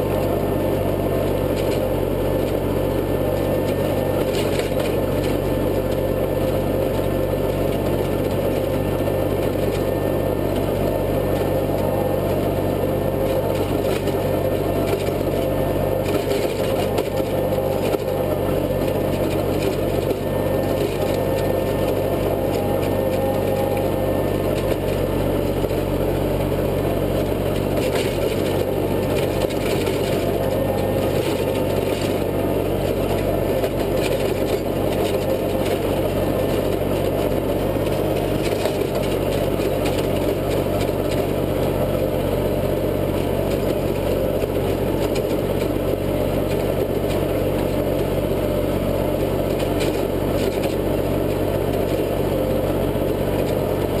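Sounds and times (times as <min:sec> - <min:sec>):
rotary tiller churning soil: 0:00.0 - 0:54.0
tractor engine running under load: 0:00.0 - 0:54.0.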